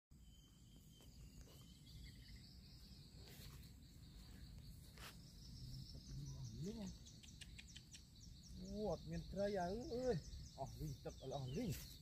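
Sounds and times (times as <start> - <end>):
insects trilling: 0.1 - 12.0.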